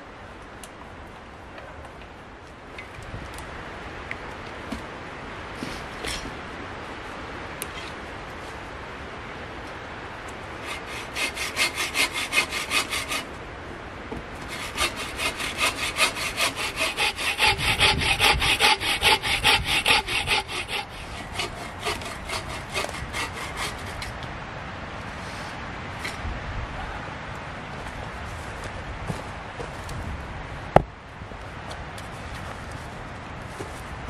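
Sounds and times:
bow saw cutting log: 0:10.6 - 0:13.3, 0:14.4 - 0:24.2.

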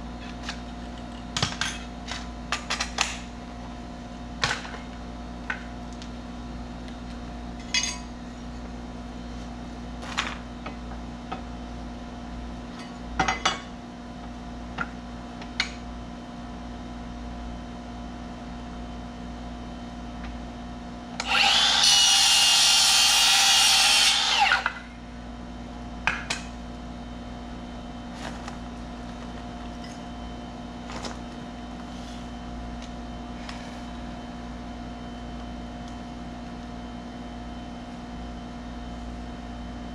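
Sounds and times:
circular saw cutting board: 0:21.2 - 0:24.9.

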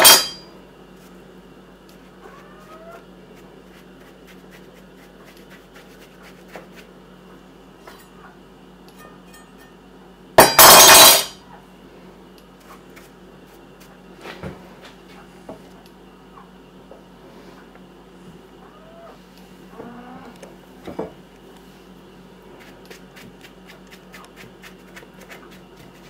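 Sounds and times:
brush strokes on mushroom: 0:03.2 - 0:07.0, 0:21.6 - 0:26.0.

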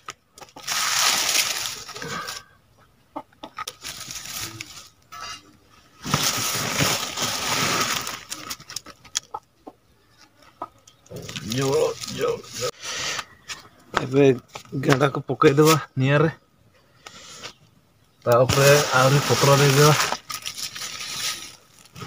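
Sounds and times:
dry leaves rustling and crackling: 0:00.4 - 0:02.4, 0:03.7 - 0:05.4, 0:06.0 - 0:09.1, 0:11.1 - 0:12.7, 0:18.3 - 0:22.0.

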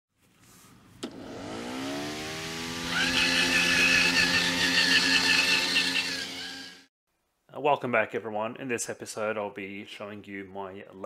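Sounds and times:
motor whining: 0:01.0 - 0:06.9.

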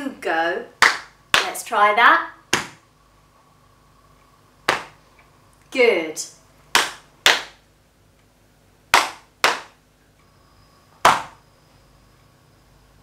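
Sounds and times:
hand slaps: 0:00.8 - 0:01.5, 0:02.5 - 0:02.8, 0:04.7 - 0:05.0, 0:06.7 - 0:07.6, 0:08.9 - 0:09.8, 0:11.0 - 0:11.4.

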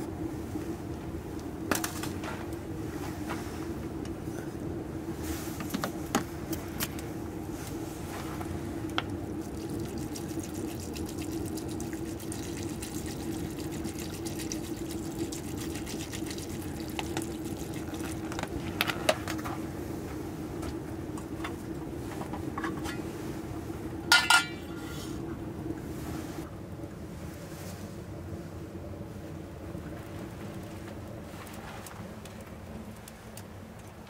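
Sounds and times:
broth bubbling in a pot: 0:04.6 - 0:19.8, 0:20.5 - 0:26.1.

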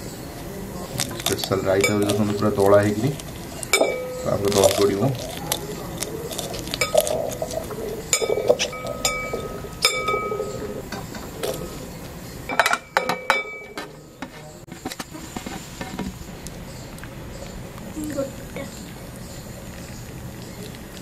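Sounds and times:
clinks against glass bowl: 0:01.4 - 0:02.4, 0:03.7 - 0:04.9, 0:08.1 - 0:10.7, 0:12.5 - 0:13.9.

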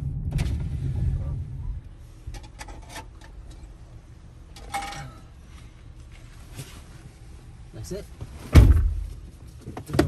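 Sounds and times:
engine idling rumble: 0:00.0 - 0:07.8.

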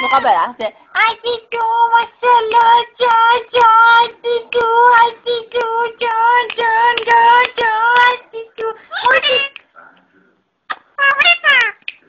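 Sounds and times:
high voice singing a chant: 0:00.9 - 0:09.6.

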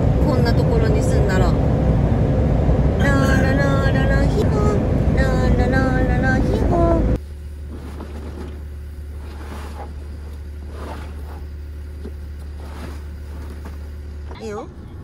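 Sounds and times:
truck diesel engine idling: 0:00.0 - 0:15.0
canvas tarp rustling: 0:07.6 - 0:14.0.

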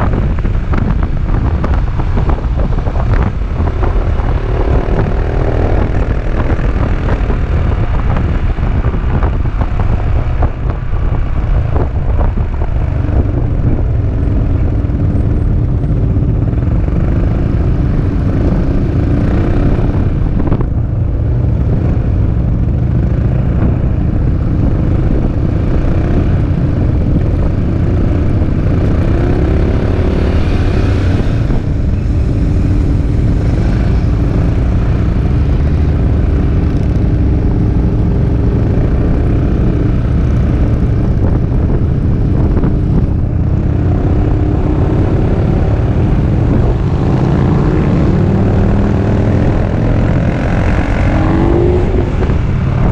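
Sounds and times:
wind rumble on microphone: 0:00.0 - 0:52.9
scooter engine humming: 0:28.2 - 0:38.2.

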